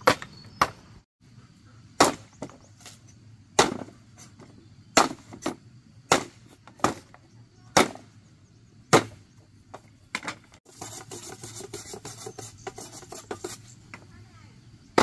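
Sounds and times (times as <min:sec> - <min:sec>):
knife chopping bamboo: 0:02.0 - 0:02.4, 0:03.6 - 0:03.9, 0:05.0 - 0:07.0, 0:08.9 - 0:09.2.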